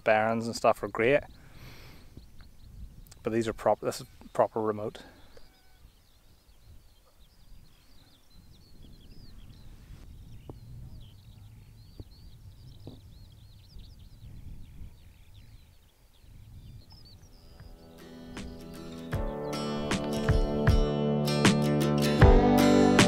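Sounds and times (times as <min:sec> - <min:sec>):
small birds chirping and singing: 0:00.0 - 0:21.0
low steady wind rumble: 0:00.7 - 0:04.2, 0:05.8 - 0:18.9.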